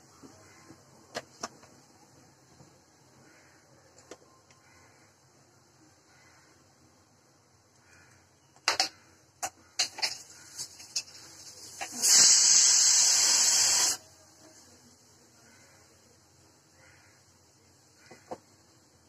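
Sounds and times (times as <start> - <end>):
pressure cooker steam hissing: 9.8 - 14.2.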